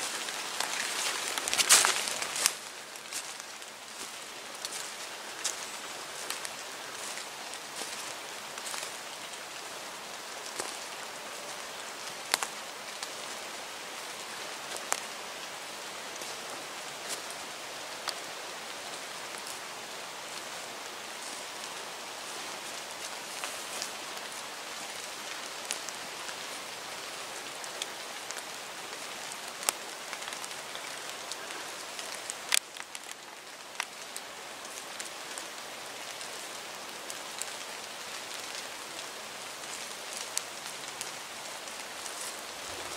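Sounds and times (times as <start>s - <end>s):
rain on foliage: 0.0s - 42.9s.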